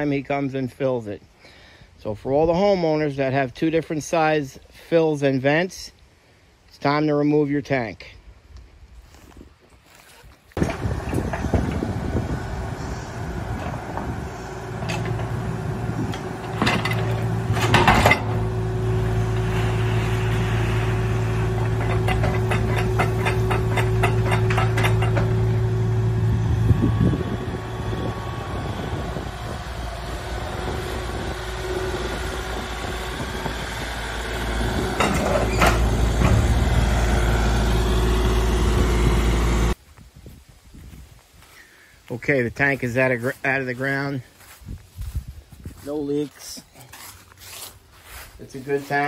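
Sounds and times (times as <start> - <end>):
excavator engine running: 10.6 - 39.8
metal clanks and scrapes: 14.8 - 15.4, 16.1 - 18.5, 19.4 - 25.6, 34.9 - 36.5
rapid rattle: 21.5 - 25.6.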